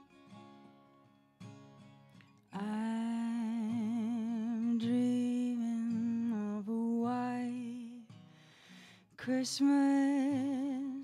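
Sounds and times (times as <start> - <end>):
quiet acoustic guitar: 0.0 - 11.0
woman singing with vibrato: 2.6 - 8.0, 9.2 - 11.0.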